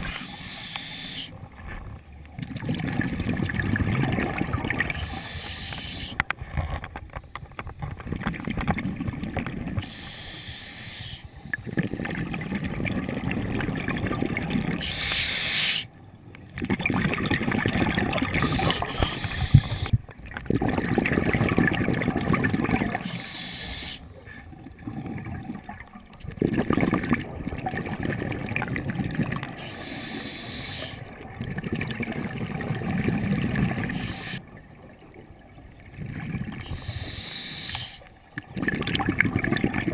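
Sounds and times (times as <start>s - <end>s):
regulator hissing inhalations: 0.0s - 1.3s, 5.1s - 6.2s, 9.8s - 11.5s, 14.8s - 15.9s, 18.4s - 20.0s, 23.0s - 24.1s, 29.6s - 31.1s, 33.9s - 34.4s, 36.7s - 38.1s
exhaled air bubbling: 0.0s - 39.9s.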